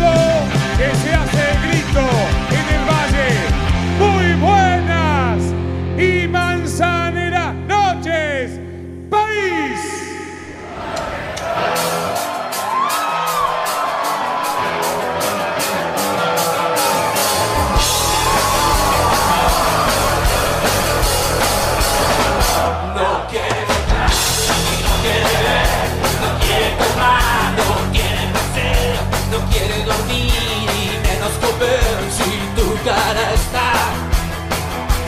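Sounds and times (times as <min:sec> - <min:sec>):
music with drum beat and bass: 0:00.0 - 0:04.0, 0:11.6 - 0:22.7, 0:23.4 - 0:35.0.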